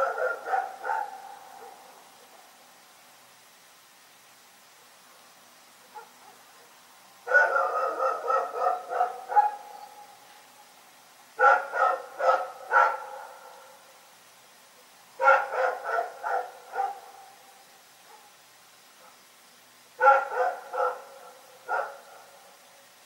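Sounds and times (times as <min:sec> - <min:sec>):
dog barking rapidly: 0:00.0 - 0:01.9, 0:07.3 - 0:09.7, 0:11.4 - 0:13.4, 0:15.2 - 0:17.2, 0:20.0 - 0:22.1.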